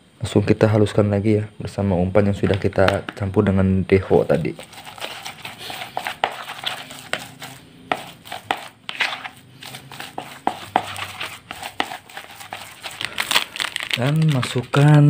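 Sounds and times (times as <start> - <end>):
paddle scraping plastic bowl: 4.5 - 13.1.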